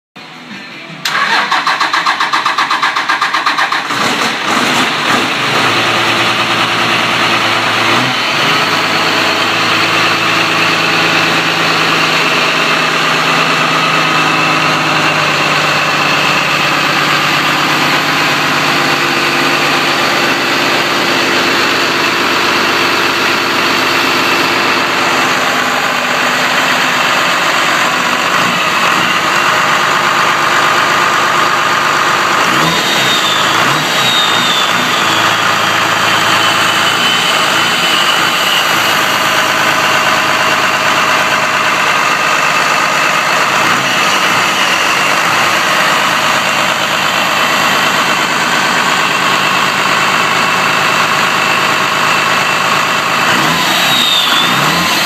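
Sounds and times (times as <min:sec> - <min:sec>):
car engine cranking: 0:01.0 - 0:07.2
car engine idling: 0:01.0 - 0:55.0.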